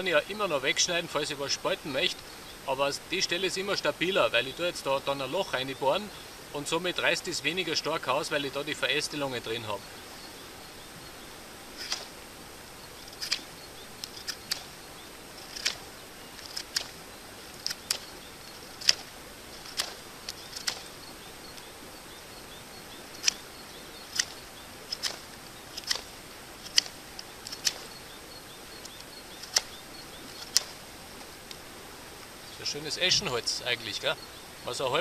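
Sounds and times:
pocket knife whittling wood: 0:11.7 - 0:12.2, 0:13.0 - 0:21.0, 0:23.0 - 0:28.0, 0:28.8 - 0:30.8.

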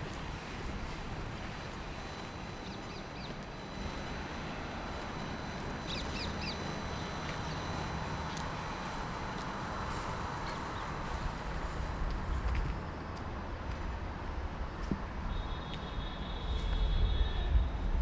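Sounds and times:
low hum of street ambience: 0:00.0 - 0:18.0
bird chirping: 0:05.8 - 0:06.7.

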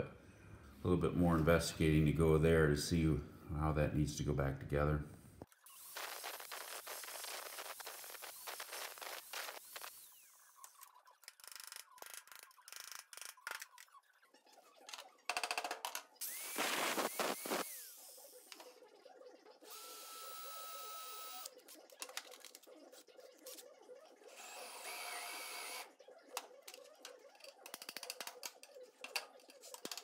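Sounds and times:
electric drill boring into steel: 0:16.2 - 0:18.2, 0:19.7 - 0:21.5, 0:24.3 - 0:25.9.

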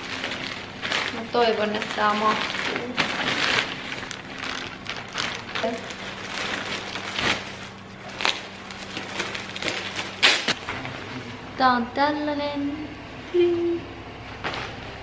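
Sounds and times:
plastic packaging crinkling: 0:00.0 - 0:10.7.

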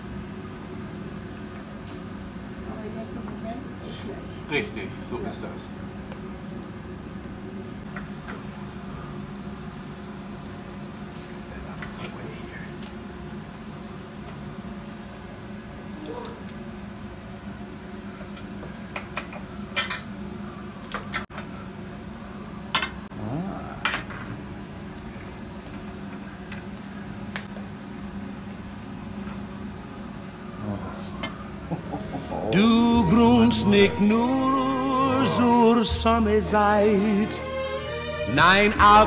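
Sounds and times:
steady low hum: 0:27.8 - 0:39.0.

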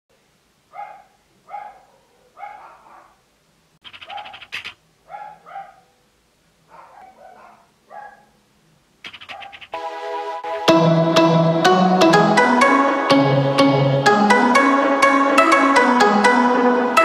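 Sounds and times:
dogs barking: 0:00.7 - 0:03.2, 0:03.9 - 0:06.0, 0:06.7 - 0:08.4, 0:09.1 - 0:09.8
higher dog yaps: 0:00.7 - 0:03.2, 0:04.0 - 0:06.0, 0:06.7 - 0:08.4.

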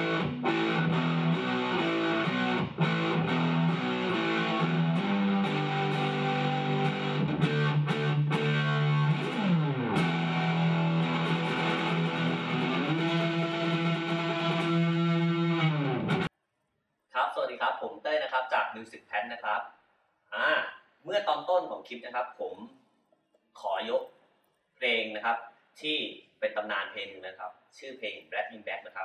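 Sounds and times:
electric guitar through amp: 0:00.0 - 0:16.3.

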